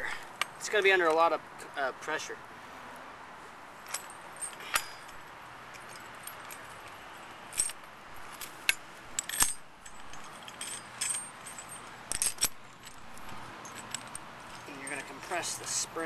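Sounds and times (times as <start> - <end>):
metal clinks of spring compressor: 3.8 - 6.7, 7.5 - 15.9.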